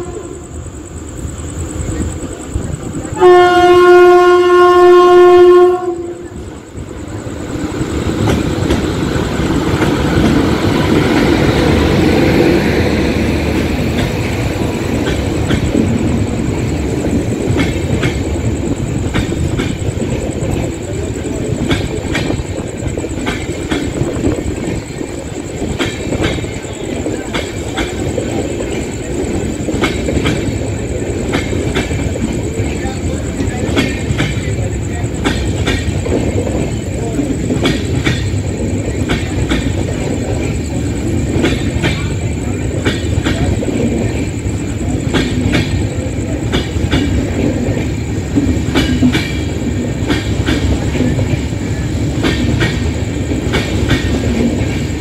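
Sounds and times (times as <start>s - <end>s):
train horn blast: 0.0s - 0.6s, 3.2s - 6.3s
passing train rumble: 0.0s - 55.0s
wheels clattering over rail joints: 7.6s - 55.0s.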